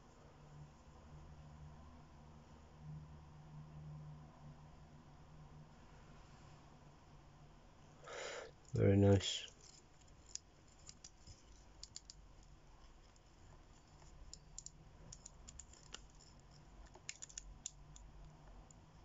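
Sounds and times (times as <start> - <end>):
watch bezel clicking: 9.5 - 18.8.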